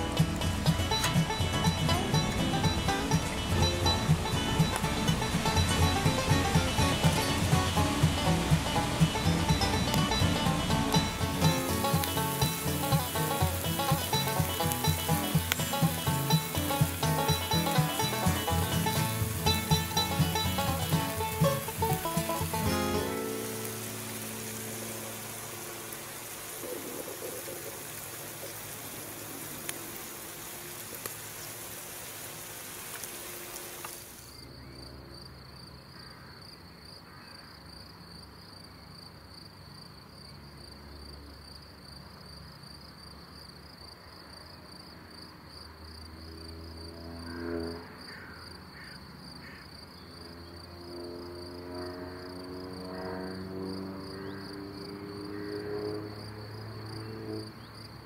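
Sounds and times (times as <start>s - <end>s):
music: 0.0s - 26.4s
crickets chirring: 0.1s - 58.0s
steaks sizzling on grill: 7.8s - 34.2s.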